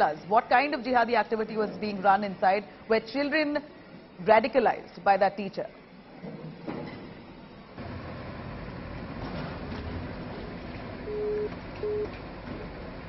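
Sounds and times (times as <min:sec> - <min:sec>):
low noise and hum: 0:05.7 - 0:13.0
short beeps: 0:11.1 - 0:12.1.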